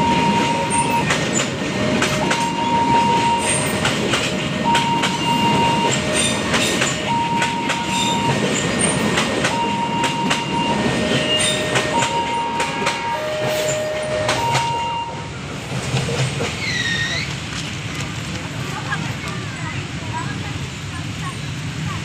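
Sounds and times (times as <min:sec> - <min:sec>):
two-tone crossing alarm: 0:00.0 - 0:01.4, 0:02.0 - 0:03.9, 0:04.6 - 0:15.3
train wheels clickety-clack: 0:00.0 - 0:20.4.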